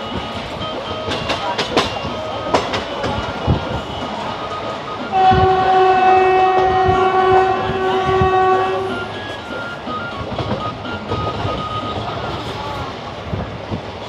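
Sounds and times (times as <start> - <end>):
train wheels clattering on rails: 0.0 - 14.0
train horn blast: 3.7 - 10.5.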